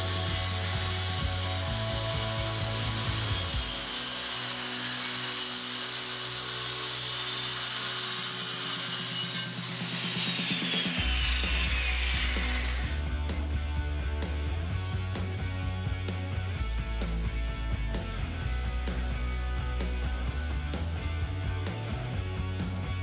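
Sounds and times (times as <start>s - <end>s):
downward sliding tone: 0.0s - 13.0s
jigsaw cutting wood: 0.0s - 13.5s
background music: 0.0s - 23.0s.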